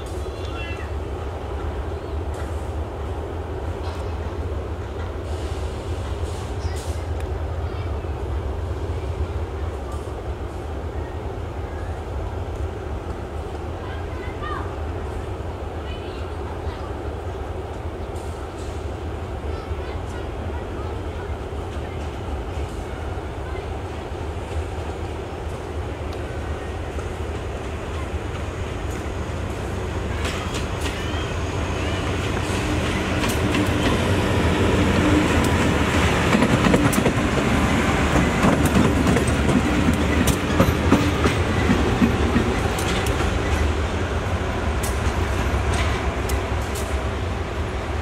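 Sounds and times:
train wheels clicking over rail joints: 26.9s - 31.3s, 32.0s - 47.3s.

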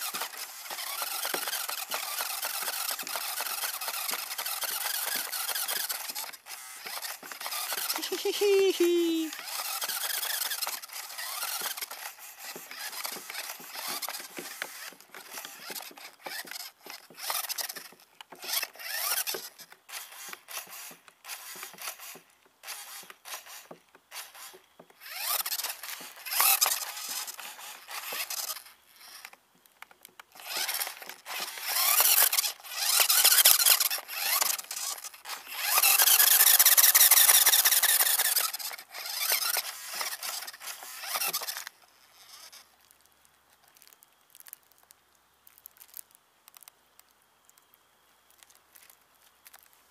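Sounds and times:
high-pitched squeaking and squealing: 0.0s - 19.6s, 22.7s - 29.3s, 30.4s - 42.6s.

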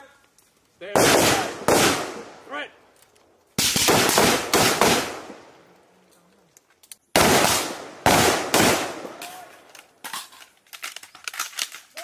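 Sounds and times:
rifle shots with echo: 0.9s - 2.4s, 3.6s - 5.5s, 7.1s - 9.2s.

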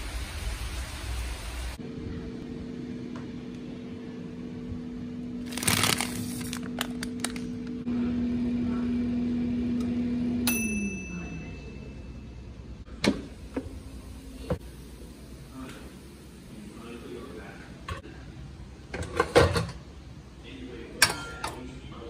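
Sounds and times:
air fryer fan humming: 0.0s - 22.0s
timer bell ding: 10.4s - 12.3s.

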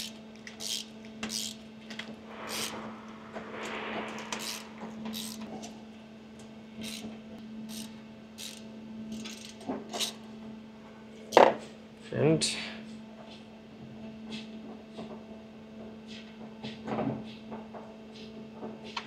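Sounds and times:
steady low hum: 0.0s - 9.0s.

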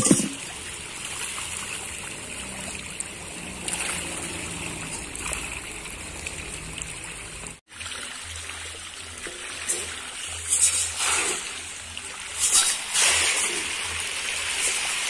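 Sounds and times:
fish thrashing and splashing: 0.0s - 6.4s.

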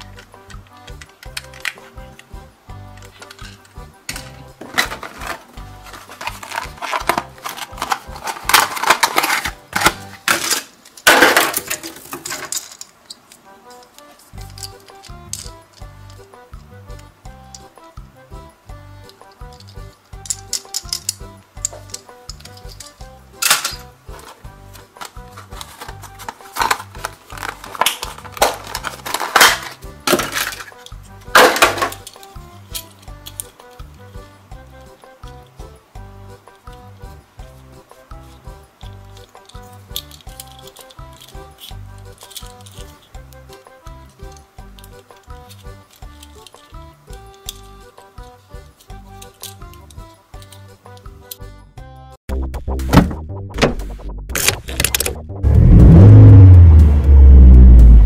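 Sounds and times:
background music with bass line: 0.0s - 8.6s, 14.3s - 58.0s
plastic packaging crackling: 4.8s - 13.0s, 25.0s - 30.8s
plastic blister pack crackling: 24.8s - 30.8s.

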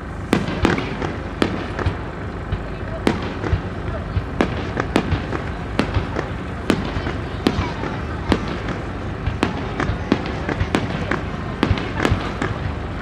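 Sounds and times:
fireworks bursting: 0.0s - 13.0s.

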